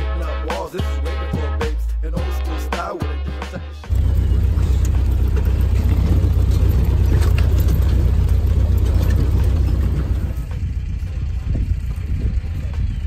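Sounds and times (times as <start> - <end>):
vehicle engine rumble: 3.8 - 13.0
light rattles: 3.9 - 10.7.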